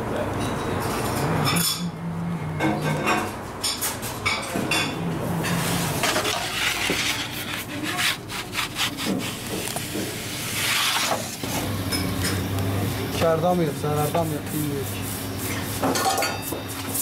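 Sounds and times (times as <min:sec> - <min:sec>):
peel scraping across stone floor: 0:05.5 - 0:11.6.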